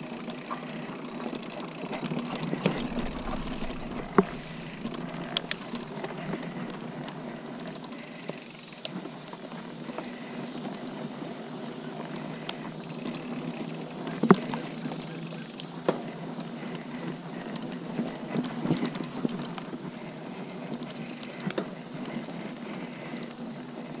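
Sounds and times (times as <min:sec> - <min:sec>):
bike tyres rumbling on dirt: 0:00.0 - 0:08.4
bike rattling over bumps: 0:00.1 - 0:23.2.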